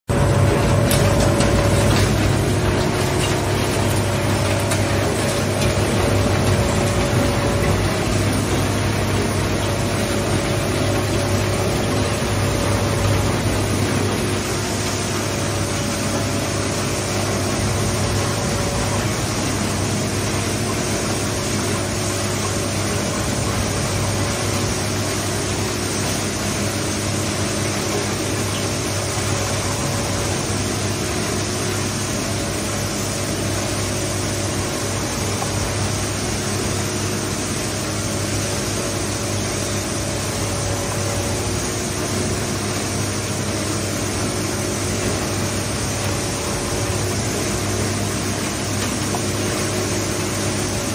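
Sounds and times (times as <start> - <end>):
industrial shredder running: 0.1 - 50.9.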